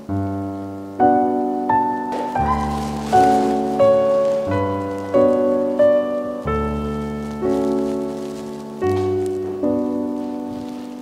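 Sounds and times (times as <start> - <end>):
piano chords: 0.0 - 11.0.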